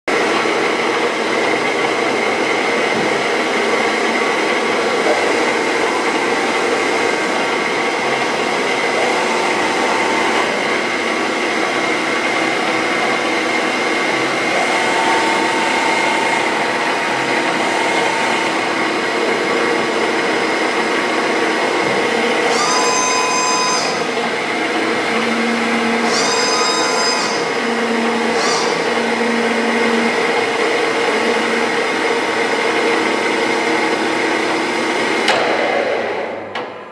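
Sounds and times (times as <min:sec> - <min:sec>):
milling machine running: 0:00.1 - 0:36.8
short high-pitched whines: 0:14.5 - 0:19.0, 0:22.4 - 0:24.2.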